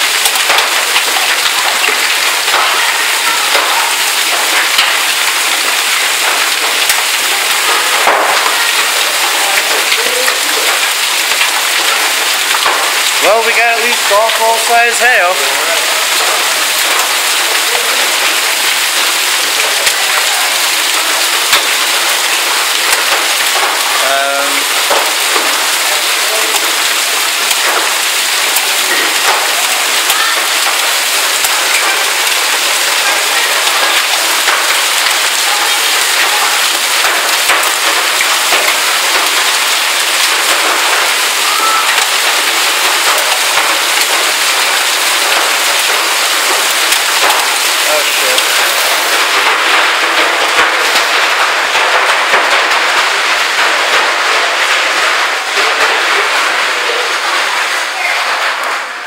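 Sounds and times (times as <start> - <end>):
hailstones striking hard surfaces: 0.0 - 59.0
heavy rain downpour: 0.0 - 59.0.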